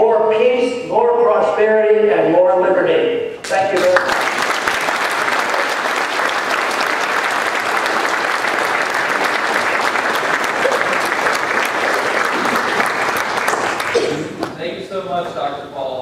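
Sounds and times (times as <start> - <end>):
audience applauding: 3.4 - 14.6.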